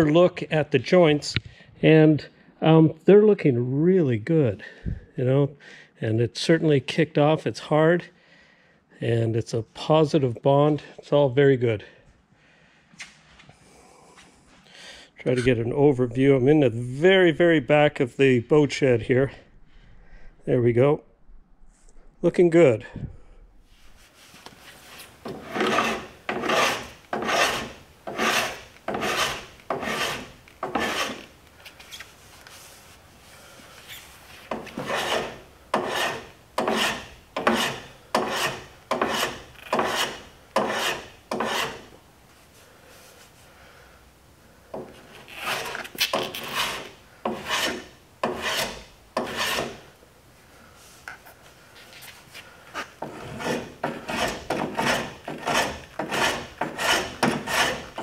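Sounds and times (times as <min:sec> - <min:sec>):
hand plane scraping wood: 0:24.6 - 0:31.3, 0:34.3 - 0:41.9, 0:44.8 - 0:49.9, 0:52.8 - 0:58.0.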